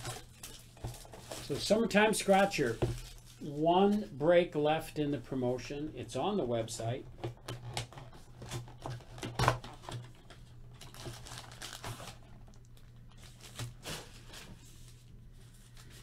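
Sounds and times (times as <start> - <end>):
card wrappers crinkling: 0.0 - 4.1, 8.0 - 16.0.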